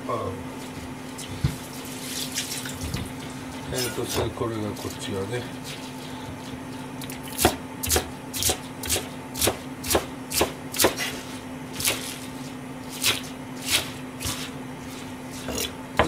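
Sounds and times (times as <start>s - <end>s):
steady low hum: 0.0s - 16.0s
knife chopping on cutting board: 4.1s - 4.4s, 7.3s - 11.2s.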